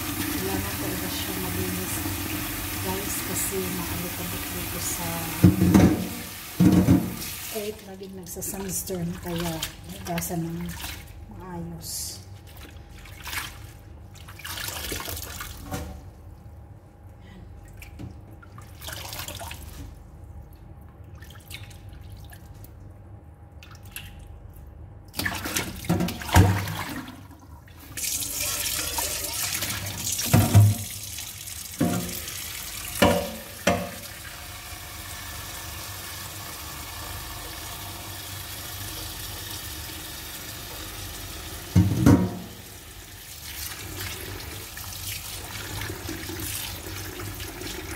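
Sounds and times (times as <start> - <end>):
water sloshing in a bowl: 0.0 - 16.6, 17.5 - 34.3
tap running into sink: 5.3 - 7.3, 30.2 - 31.0, 31.8 - 32.3, 32.9 - 34.1, 41.7 - 42.6
metal bowl clanking against sink: 5.4 - 7.2, 31.8 - 32.3, 33.0 - 34.1, 41.7 - 42.6.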